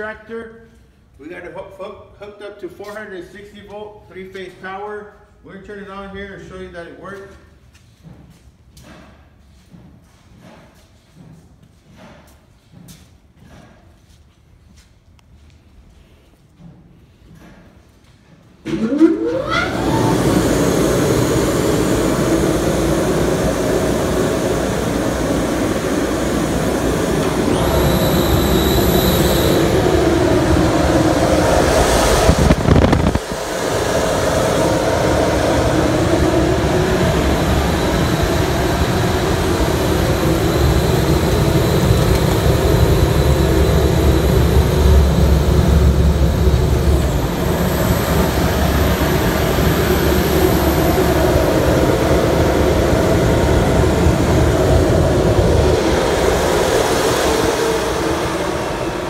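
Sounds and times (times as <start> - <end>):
fan motor rushing air: 15.8 - 59.0.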